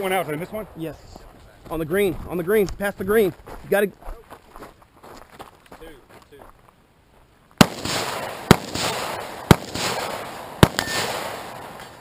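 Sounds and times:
pistol shots echoing: 7.6 - 12.0.

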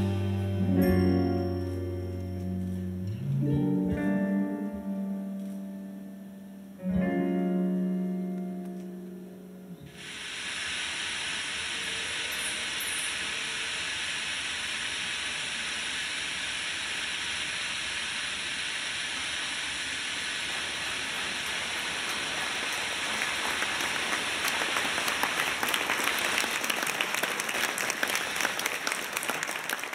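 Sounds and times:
audience applauding: 20.3 - 29.9
nearby claps: 20.8 - 29.9.

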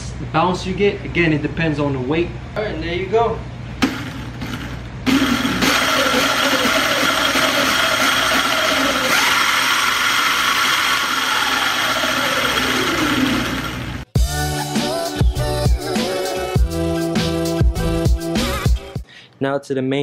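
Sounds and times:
electric scooter motor whining: 4.4 - 14.1.

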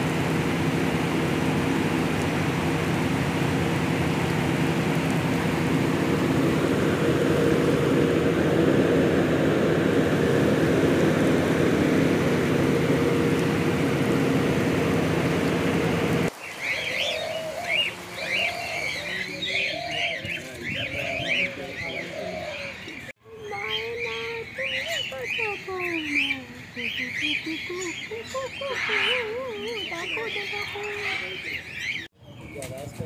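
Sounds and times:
pump machine hum: 0.0 - 22.0
birds chirping and calling: 16.4 - 33.0.

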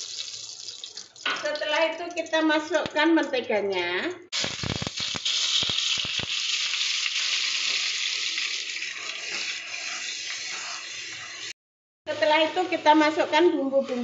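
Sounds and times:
butter sizzling in hot oil: 4.3 - 14.0.

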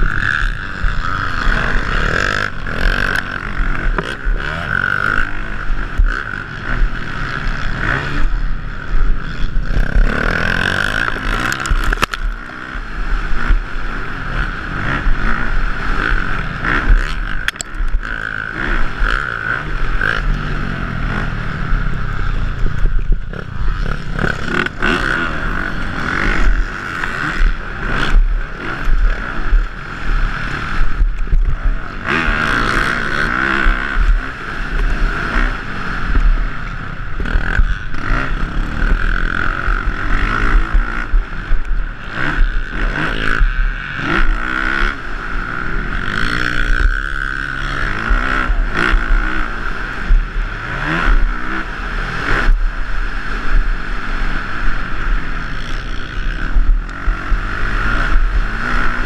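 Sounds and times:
dirt bike engine revving: 0.0 - 59.0
wind buffeting microphone: 19.7 - 26.6.

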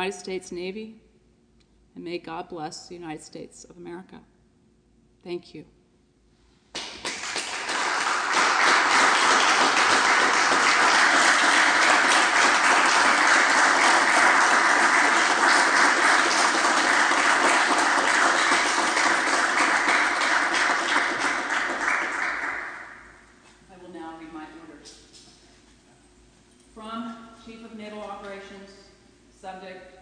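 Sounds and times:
crowd applauding: 6.8 - 23.2.

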